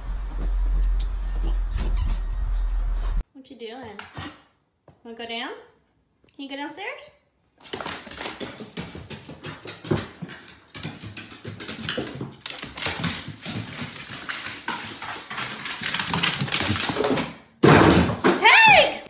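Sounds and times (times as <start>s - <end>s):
dog claws tapping on wooden stairs: 7.6s - 18.4s.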